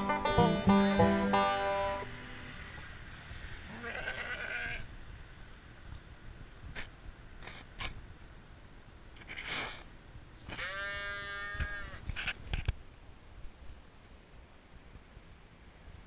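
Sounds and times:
sheep bleating: 3.7s - 4.8s, 10.5s - 12.0s.

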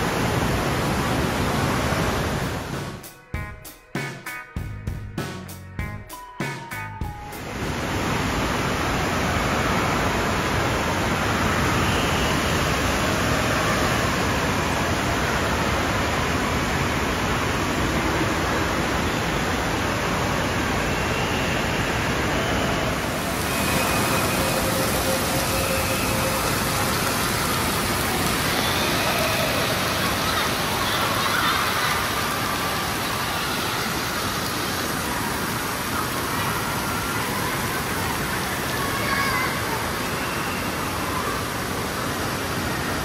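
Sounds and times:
running and splashing water: 21.9s - 43.0s.

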